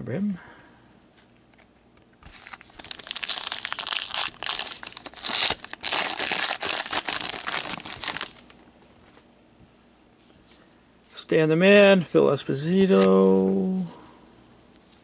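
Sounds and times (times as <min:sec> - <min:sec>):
card pack wrapper crinkling and tearing: 0:02.2 - 0:08.6.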